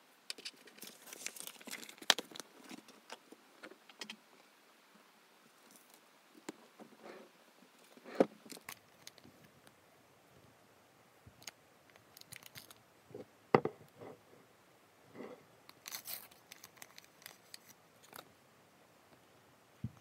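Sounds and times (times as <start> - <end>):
foil sachet crinkling: 0.4 - 3.0, 12.1 - 12.8, 15.7 - 18.2
foil ripping: 15.8 - 18.2.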